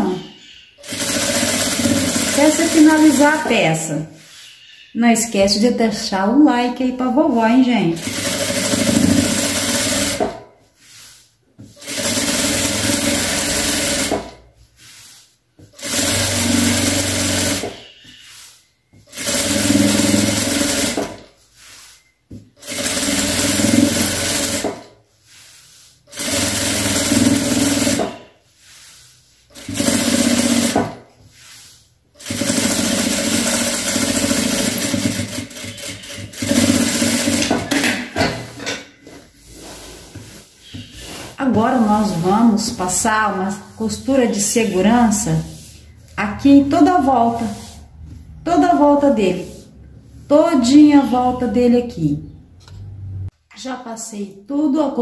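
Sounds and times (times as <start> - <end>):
sewing machine stitching: 0.8 - 3.5, 7.9 - 10.5, 11.8 - 14.4, 15.7 - 17.8, 19.1 - 21.3, 22.6 - 25.0, 26.1 - 28.3, 29.5 - 31.1, 32.2 - 38.1.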